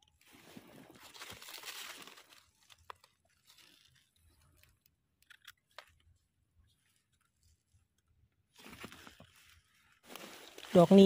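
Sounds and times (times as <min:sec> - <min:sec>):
rustling of wet leaves and soil: 0:00.0 - 0:11.0
small clicks: 0:02.8 - 0:06.1.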